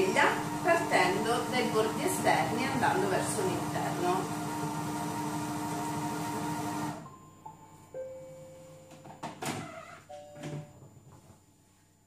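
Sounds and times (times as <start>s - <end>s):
food processor motor: 0.0s - 7.0s
descending chime tones: 10.1s - 10.8s.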